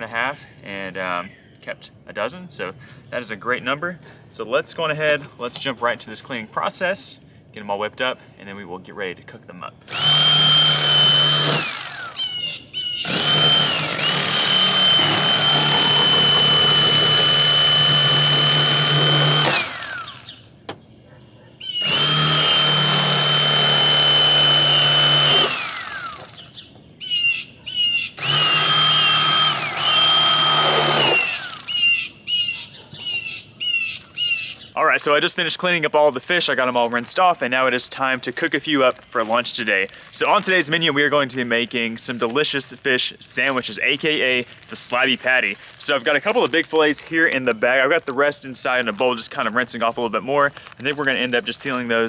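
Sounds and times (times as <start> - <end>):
electric knife motor whine: 9.9 - 20.5, 21.8 - 26.5, 28.2 - 32.1.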